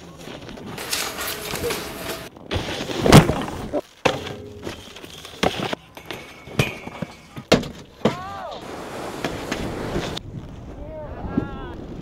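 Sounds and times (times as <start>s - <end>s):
snowboard crash impacts: 1.7s - 5.8s.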